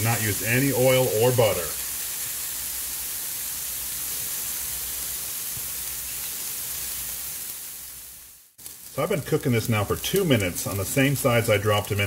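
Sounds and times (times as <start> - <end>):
fish sizzling in a pan: 0.0 - 12.0.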